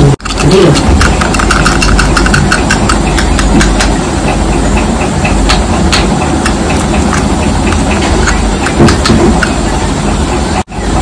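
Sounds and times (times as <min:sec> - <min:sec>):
fingers clicking on plastic jar: 0:00.2 - 0:03.9.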